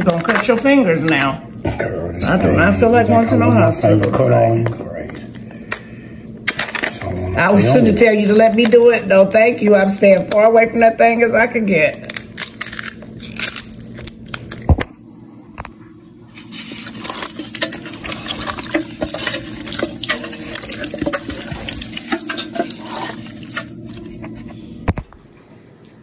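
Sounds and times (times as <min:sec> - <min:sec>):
steady low hum: 0:00.0 - 0:26.0
wet squelching: 0:16.3 - 0:24.2.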